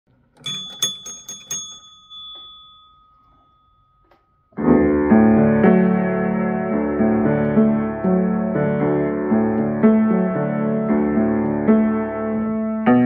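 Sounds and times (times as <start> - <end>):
thin ringing tone: 0.4 - 4.6
piano playing sustained chords: 4.6 - 13.0.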